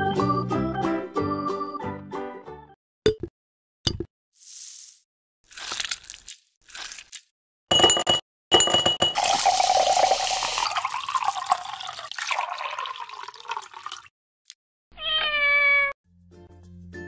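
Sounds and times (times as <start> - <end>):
liquid pouring over ice: 5.5 - 7.2, 9.2 - 14.1
cat meowing: 14.9 - 16.0.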